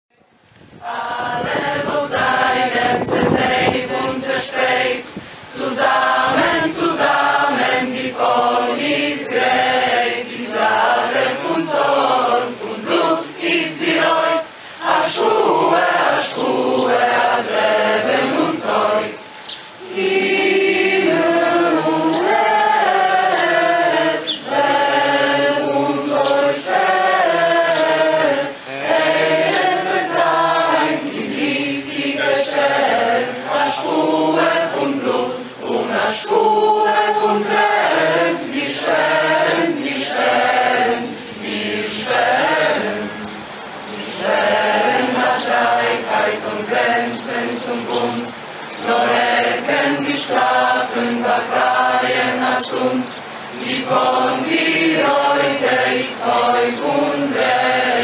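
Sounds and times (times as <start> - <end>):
choir singing: 0.8 - 58.0.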